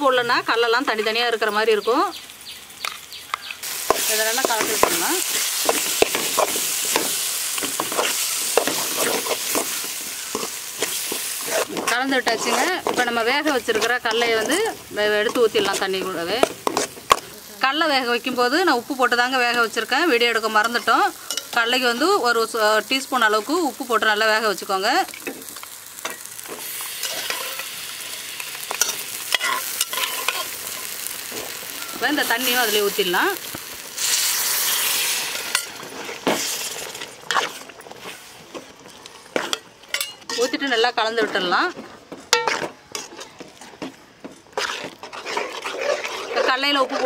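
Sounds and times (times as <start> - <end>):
frying sizzle: 0.0 - 43.4
metal spoon scraping a pot: 7.7 - 17.2, 27.0 - 27.7, 28.7 - 30.9, 44.5 - 47.0
steel spoon scraping and clinking: 20.6 - 21.6, 27.0 - 27.7, 28.7 - 30.9, 39.5 - 40.7.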